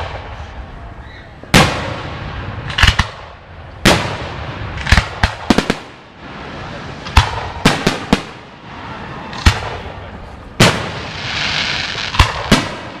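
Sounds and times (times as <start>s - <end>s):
firework hiss: 5.3s - 13.0s.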